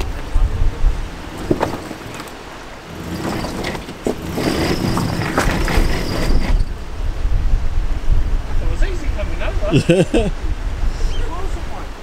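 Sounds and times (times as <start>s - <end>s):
vehicle driving over rough ground: 1.0s - 6.9s
knocks and clatter: 1.2s - 6.8s.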